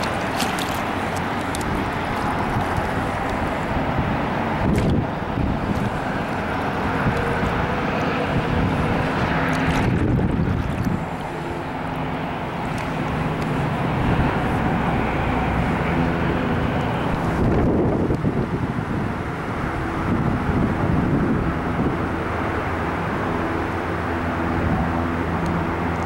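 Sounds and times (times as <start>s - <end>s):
highway traffic hum: 0.0s - 26.0s
wind on microphone: 0.0s - 26.0s.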